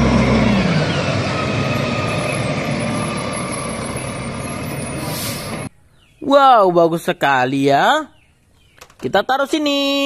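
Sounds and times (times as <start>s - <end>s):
garbage truck engine rumble: 0.0s - 5.7s
road noise: 0.0s - 7.2s.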